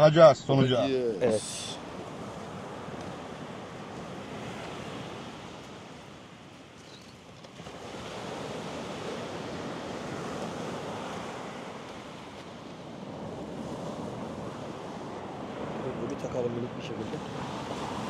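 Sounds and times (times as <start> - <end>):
surf breaking on beach: 7.2 - 18.0.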